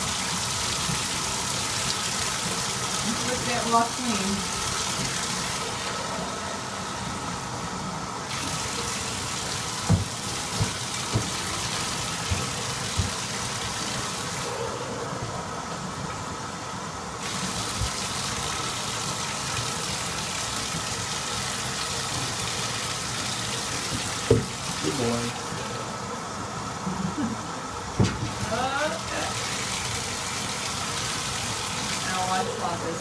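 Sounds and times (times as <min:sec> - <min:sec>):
tap water running into bathtub: 0:00.0 - 0:14.6, 0:17.2 - 0:26.8, 0:27.8 - 0:33.0
soft knocks: 0:09.9 - 0:11.6.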